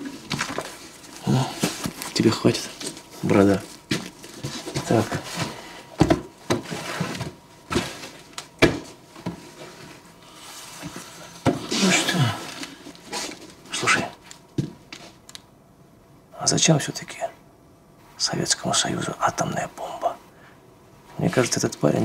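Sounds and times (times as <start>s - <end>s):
rustling and shuffling: 0.0s - 15.2s
books knocking onto pile: 3.9s - 9.4s, 11.4s - 12.7s.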